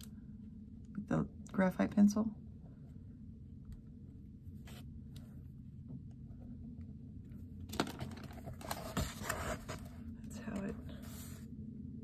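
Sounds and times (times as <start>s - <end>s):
paper crinkling and rustling: 7.7s - 10.0s.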